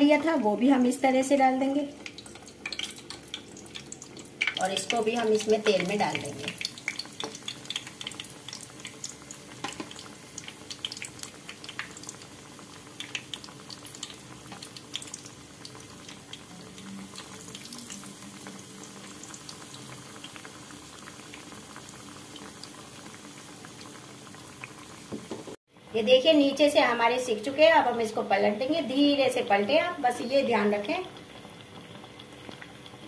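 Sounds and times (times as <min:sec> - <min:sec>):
deep-frying sizzle: 0:00.0 - 0:33.0
oil popping and crackling: 0:01.9 - 0:25.6, 0:30.9 - 0:33.0.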